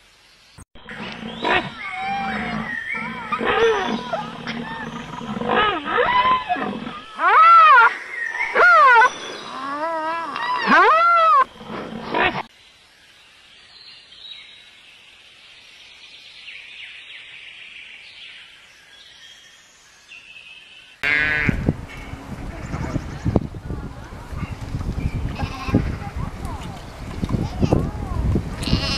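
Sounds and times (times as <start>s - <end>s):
rhinoceros squealing: 0.9s - 12.5s.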